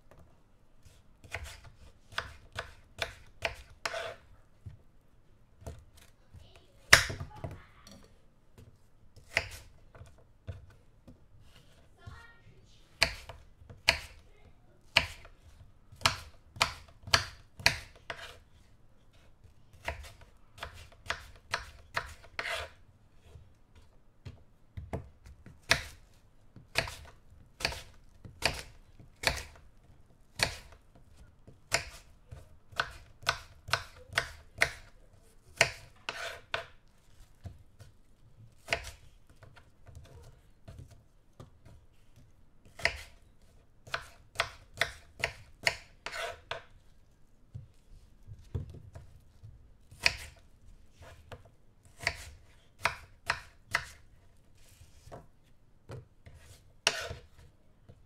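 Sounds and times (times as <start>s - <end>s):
knife cutting an apple: 0.8s - 4.3s, 9.2s - 10.7s, 13.0s - 14.2s, 15.0s - 23.9s, 24.9s - 29.6s, 30.3s - 41.0s, 41.6s - 47.8s, 48.4s - 55.3s, 55.9s - 57.5s.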